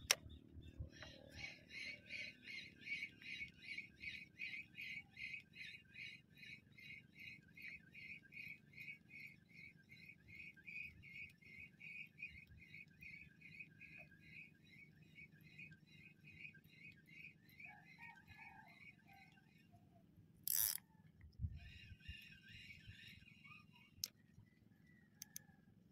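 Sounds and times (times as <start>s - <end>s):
fishing reel squeaking: 20.5s - 20.8s.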